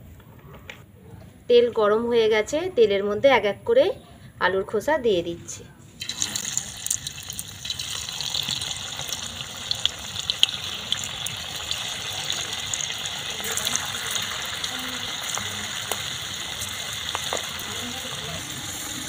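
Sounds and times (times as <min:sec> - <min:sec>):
potato peels frying in hot oil: 0:06.0 - 0:19.0.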